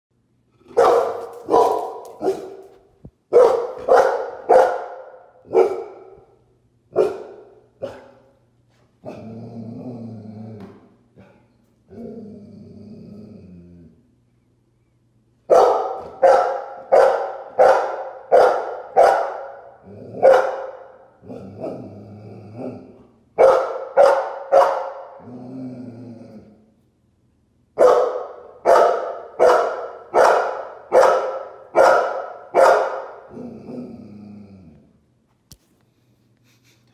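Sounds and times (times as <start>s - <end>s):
dog barking: 0.6s - 6.3s, 6.9s - 8.3s, 15.5s - 21.8s, 23.4s - 25.2s, 27.8s - 33.8s
dog growling: 9.0s - 14.1s, 19.8s - 20.3s, 21.2s - 23.1s, 25.2s - 26.7s, 33.3s - 35.0s.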